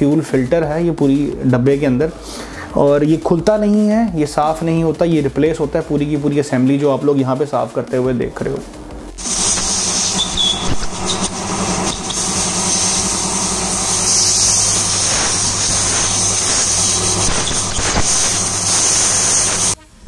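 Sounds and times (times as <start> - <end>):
air compressor humming: 9.2 - 19.8
compressed air hissing: 9.2 - 19.9.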